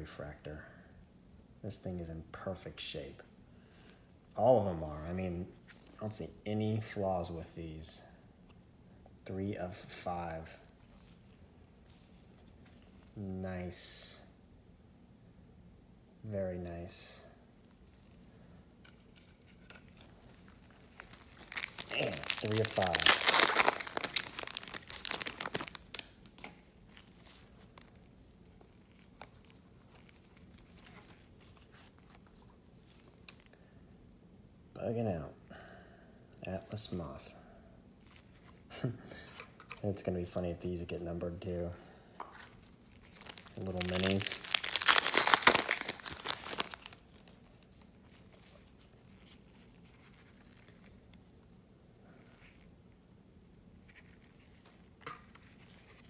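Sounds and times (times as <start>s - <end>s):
cards being handled: 18.8s - 33.5s, 42.2s - 51.0s
foil wrapper crinkling and tearing: 19.0s - 33.5s, 42.8s - 51.3s.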